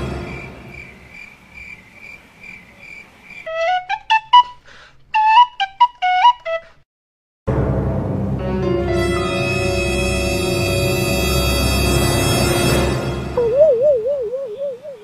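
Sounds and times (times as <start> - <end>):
cricket chirping: 0.1 - 3.5
whistled tune: 5.2 - 6.7.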